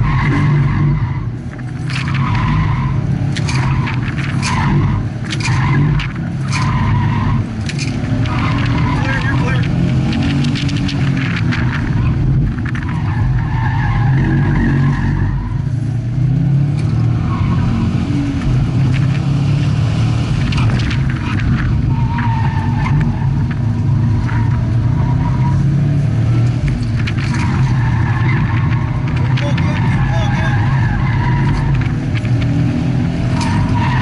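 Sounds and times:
tyres squealing: 0.0 - 11.0, 27.2 - 32.6
car engine running hard: 0.0 - 34.0.

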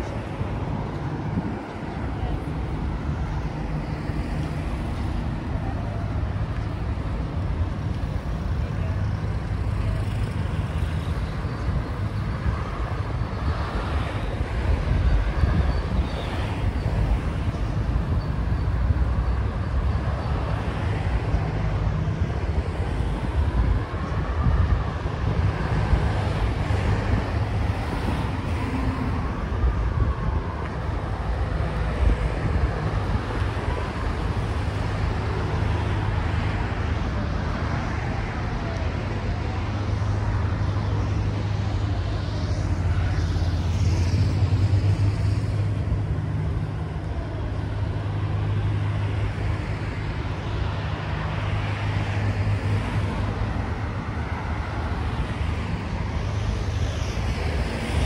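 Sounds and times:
cars passing: 0.0 - 58.0.

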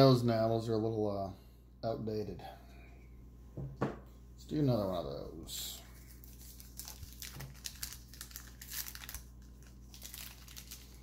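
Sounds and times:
paper wrapper tearing and crinkling: 5.9 - 11.0.

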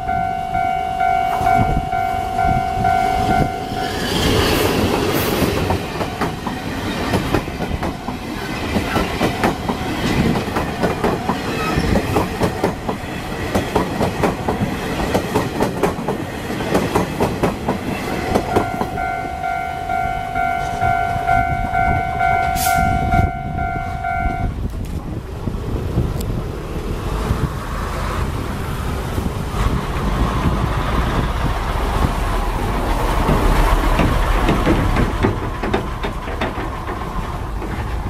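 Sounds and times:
steady tone: 0.0 - 5.0, 17.9 - 24.6
train wheels clicking over rail joints: 4.0 - 19.4, 27.0 - 38.0.

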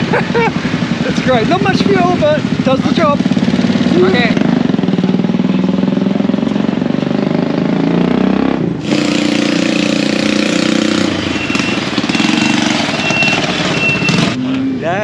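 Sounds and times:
small motorcycle engines running: 0.0 - 6.5, 8.8 - 14.4
short high beeps: 11.2 - 14.4.

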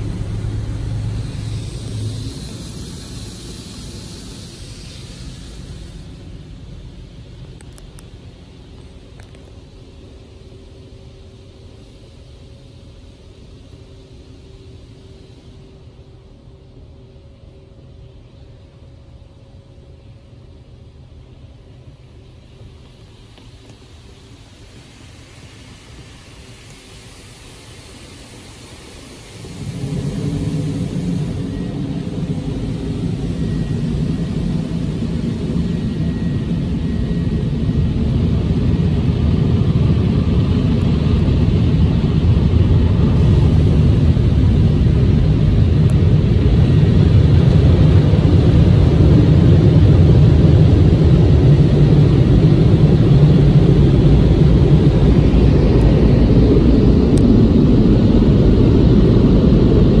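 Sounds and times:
air dryer blowers roaring: 0.0 - 7.8, 24.5 - 60.0.

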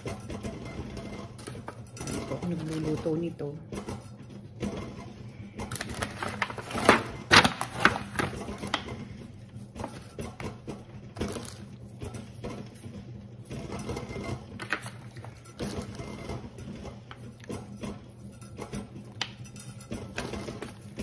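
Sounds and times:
aluminium foil pan crinkling: 5.6 - 9.0, 14.6 - 21.0.

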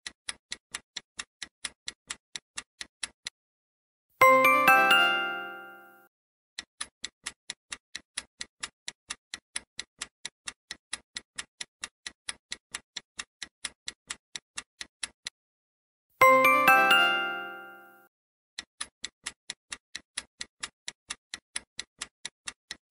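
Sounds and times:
clock ticking: 0.0 - 3.3, 4.2 - 5.9, 6.6 - 15.4, 16.2 - 18.0, 18.6 - 22.9
chime ringing: 4.2 - 6.0, 16.2 - 18.0.

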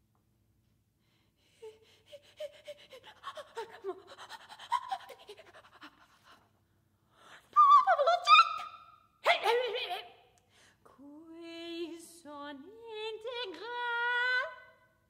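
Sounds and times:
woman's breathy vocal sounds: 1.1 - 6.5.

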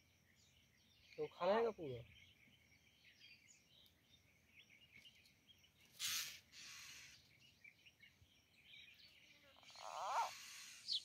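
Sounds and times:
faint bird chirps: 0.0 - 11.0
short hiss-like noise: 6.0 - 7.1.

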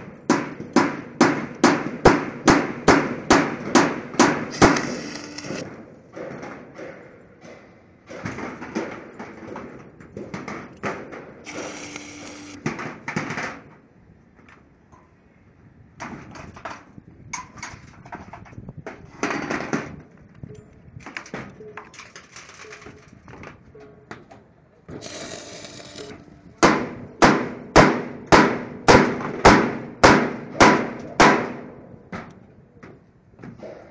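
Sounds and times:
welding gun buzzing arc: 4.5 - 5.6, 11.5 - 12.6, 25.0 - 26.3.

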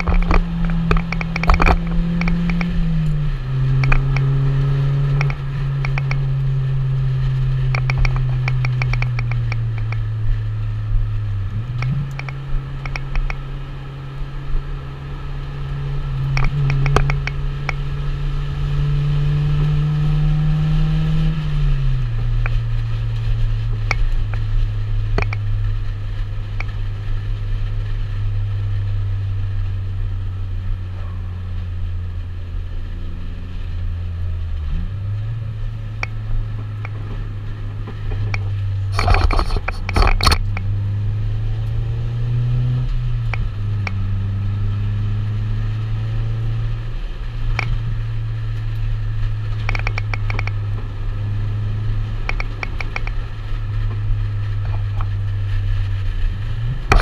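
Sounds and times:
car engine humming: 0.0 - 57.0
road noise: 0.0 - 57.0.

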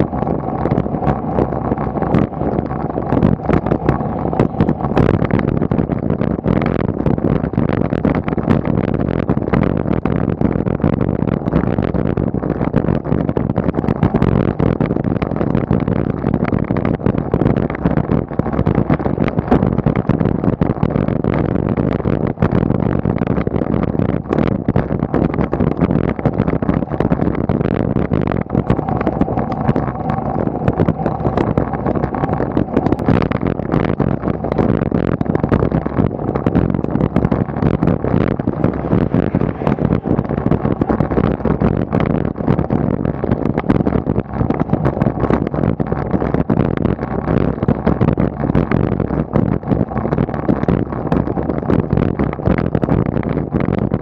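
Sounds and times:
road rumble: 0.0 - 54.0
wind on microphone: 0.0 - 54.0.

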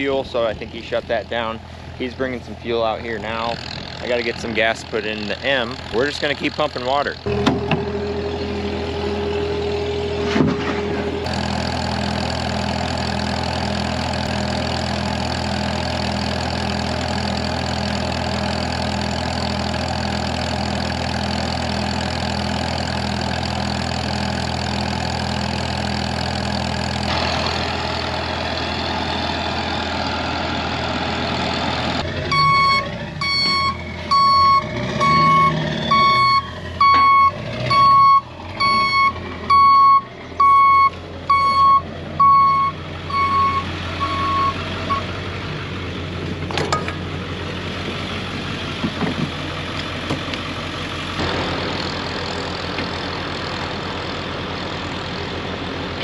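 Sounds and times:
tractor engine running: 0.0 - 56.0
electronic beep: 32.3 - 45.0.

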